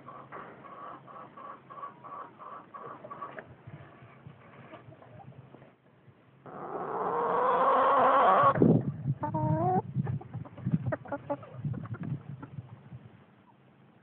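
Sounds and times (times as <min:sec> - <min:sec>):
chickens calling: 0:00.0 - 0:03.5, 0:06.4 - 0:12.8
chickens clucking softly: 0:00.0 - 0:05.7, 0:06.4 - 0:13.7.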